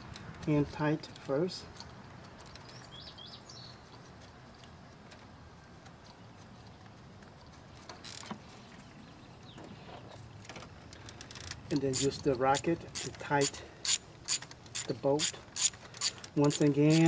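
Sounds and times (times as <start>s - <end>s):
metallic clatter of ratchet: 11.0s - 17.0s.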